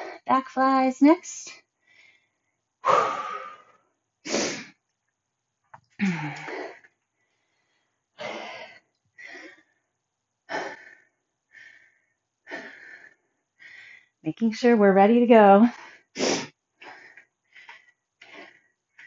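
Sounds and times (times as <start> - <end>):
woman breathing hard: 1.8 - 4.6, 6.0 - 9.9, 10.5 - 14.2, 15.7 - 19.0
woman sighing: 6.0 - 6.8.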